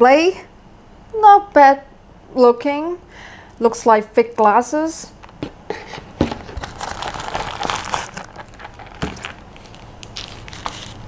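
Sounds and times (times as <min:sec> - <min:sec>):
packaging rustling and crinkling: 0:05.3 - 0:11.0.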